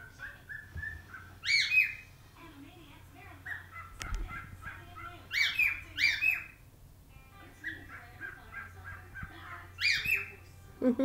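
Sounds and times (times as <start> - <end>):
shrill whistled bird calls: 0.5 - 2.0, 9.8 - 10.3
cockatiel chattering warble: 3.5 - 6.6, 7.6 - 10.3.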